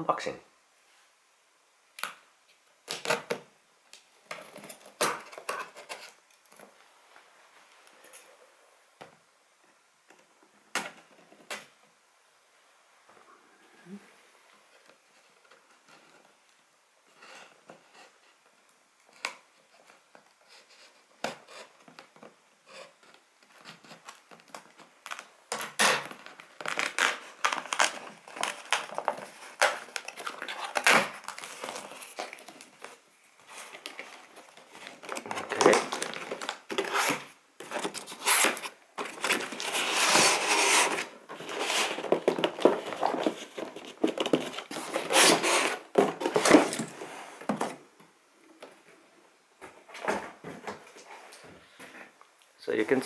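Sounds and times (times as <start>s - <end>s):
cardboard and tape tearing: 2.8s - 3.4s, 4.3s - 6.2s, 22.7s - 47.8s.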